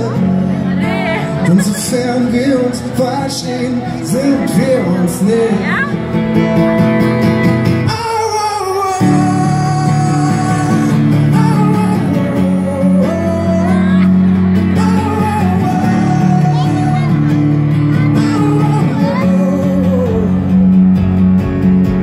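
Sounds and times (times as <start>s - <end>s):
man singing: 0.0s - 6.0s, 7.6s - 21.1s
live band playing: 0.0s - 22.0s
strummed acoustic guitar: 0.0s - 22.0s.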